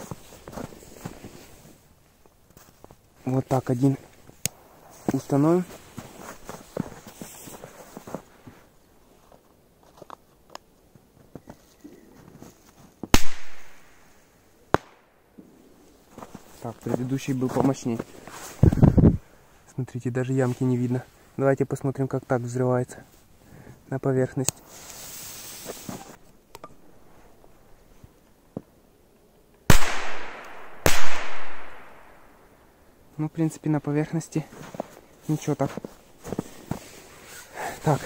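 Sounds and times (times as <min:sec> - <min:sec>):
firecracker bangs: 0:13.2 - 0:13.9, 0:29.7 - 0:32.2.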